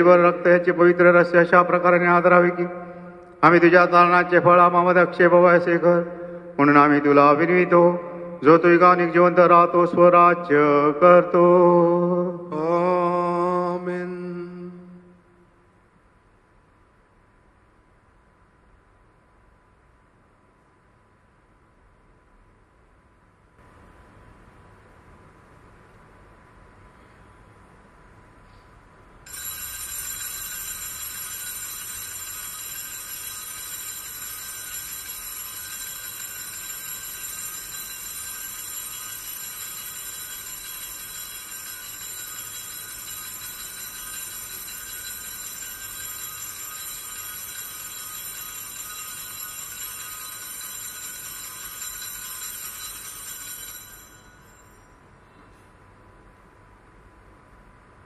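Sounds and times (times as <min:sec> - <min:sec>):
small bells jangling: 0:29.3 - 0:55.0.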